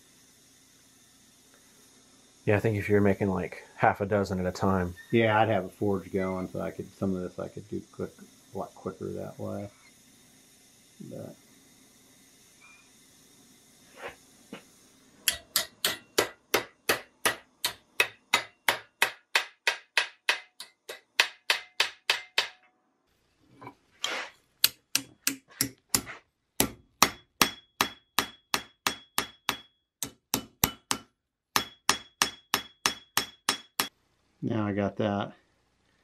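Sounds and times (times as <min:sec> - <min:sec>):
hammer striking iron on anvil: 0:15.2 - 0:22.7, 0:24.6 - 0:34.0.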